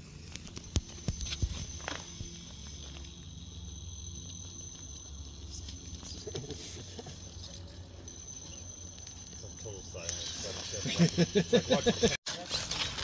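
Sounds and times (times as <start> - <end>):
low hum: 0.0 - 12.2
toy car motor whine: 0.0 - 13.0.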